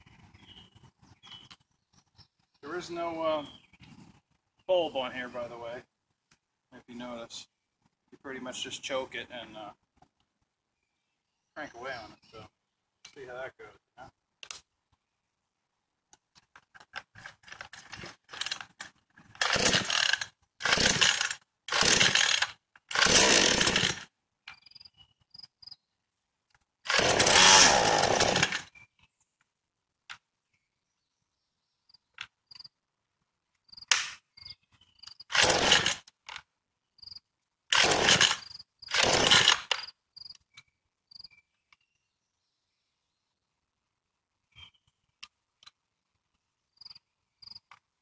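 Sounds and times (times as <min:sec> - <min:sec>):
chainsaw recoil starter pulls: 0:16.9 - 0:24.1, 0:26.9 - 0:28.7, 0:35.3 - 0:36.4, 0:37.7 - 0:39.9
chainsaw engine sputtering: 0:18.3 - 0:18.8, 0:19.4 - 0:24.1, 0:26.9 - 0:28.7, 0:35.3 - 0:36.1, 0:37.7 - 0:39.9.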